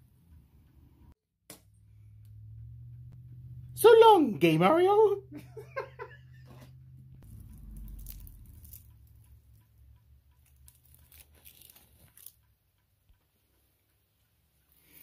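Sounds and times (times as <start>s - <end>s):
ornament clicking: 7.2s - 14.0s.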